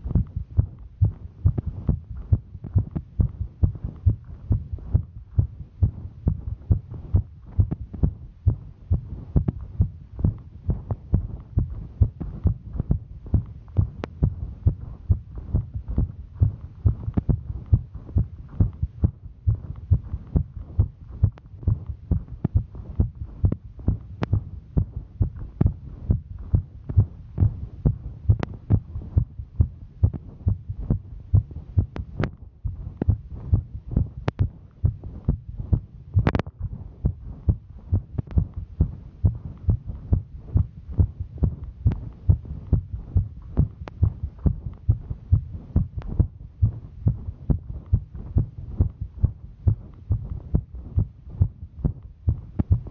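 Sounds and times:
fast heartbeat thudding: 0.0s - 52.9s.

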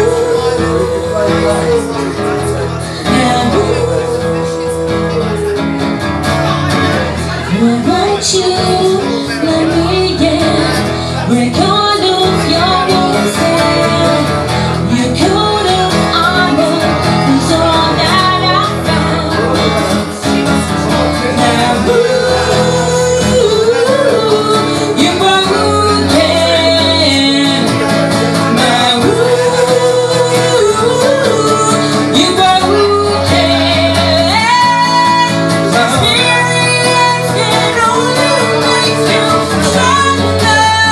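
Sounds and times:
strummed acoustic guitar: 0.0s - 40.9s
woman singing: 0.0s - 40.9s.

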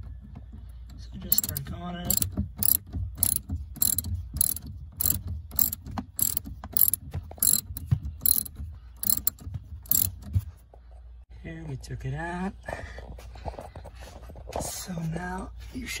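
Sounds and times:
ratchet pawl clicking: 1.3s - 10.2s.

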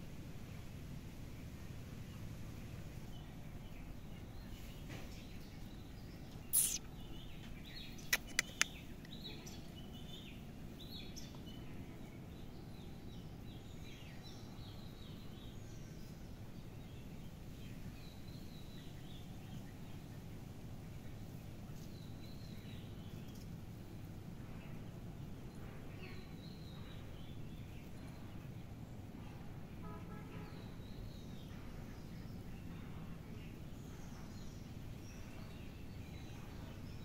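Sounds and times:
small birds chirping: 2.7s - 29.0s
sharp clicks: 8.1s - 8.8s.

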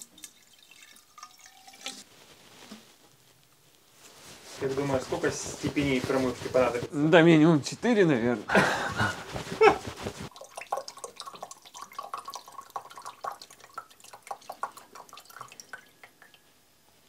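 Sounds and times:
fluid dripping into a glass: 0.0s - 2.0s, 10.3s - 16.6s.

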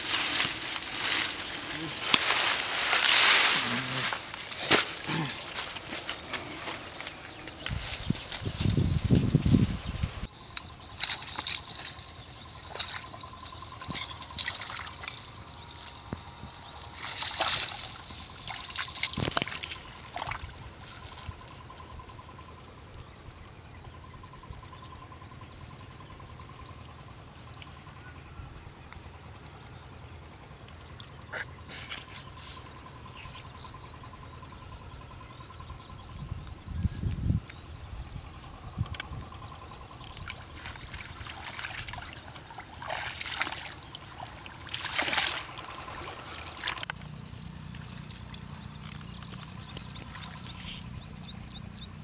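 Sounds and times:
creek water splashing: 0.0s - 8.7s, 10.9s - 21.8s, 39.9s - 51.4s
water trickling: 40.0s - 51.3s.

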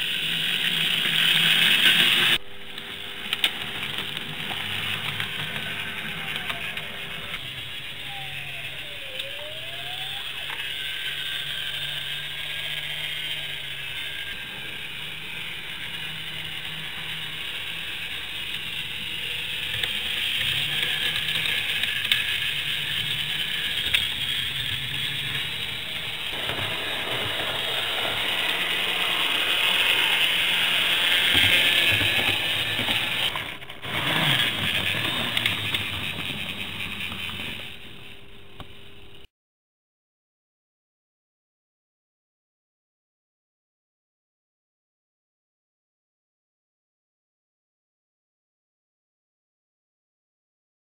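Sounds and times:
wheels rattling over track: 0.0s - 2.4s, 3.2s - 38.2s
model train motors whirring: 0.0s - 39.3s.

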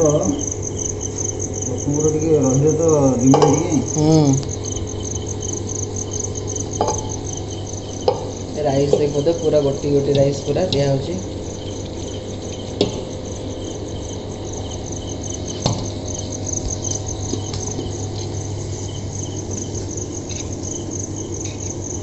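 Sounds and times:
crickets chirping: 0.0s - 22.0s
low steady hum: 0.0s - 22.0s
metal pot knocks: 3.2s - 3.7s, 6.8s - 7.3s, 8.0s - 11.1s.

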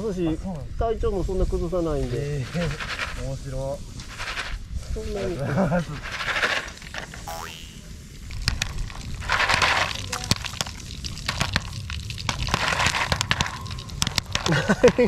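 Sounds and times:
campfire crackling: 2.0s - 15.0s
foil pan rattling: 5.6s - 7.2s, 8.4s - 15.0s
popcorn popping: 5.9s - 15.0s.

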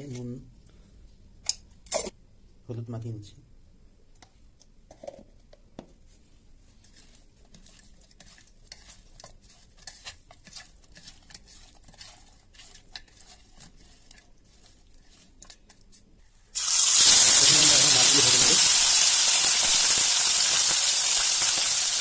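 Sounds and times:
hand kneading fish: 6.0s - 16.2s
fish frying in hot oil: 16.6s - 22.0s.

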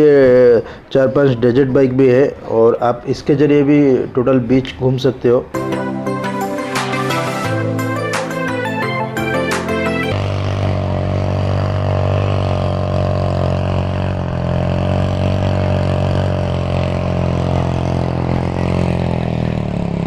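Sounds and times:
background music: 5.5s - 10.2s
quad bike engine droning: 10.1s - 20.0s.

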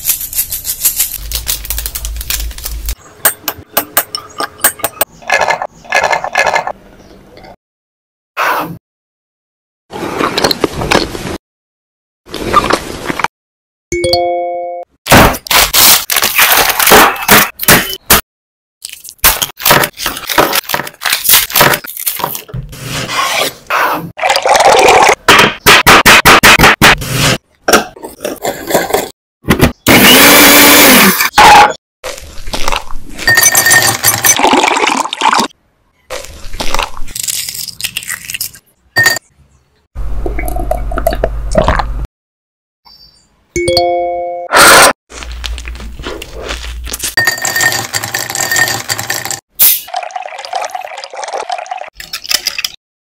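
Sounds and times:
food preparation sounds: 0.0s - 6.8s, 15.1s - 18.2s, 18.8s - 39.3s, 44.6s - 52.8s
utensils or glassware clinking: 33.3s - 34.4s
liquid being poured: 33.7s - 35.5s, 49.8s - 52.0s.

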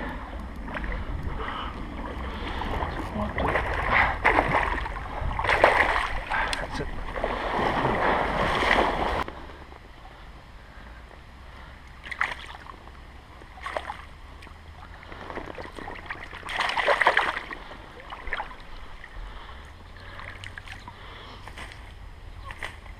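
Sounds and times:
water splashing in stream: 2.0s - 9.3s, 12.0s - 12.8s, 13.4s - 19.2s, 20.0s - 21.0s.

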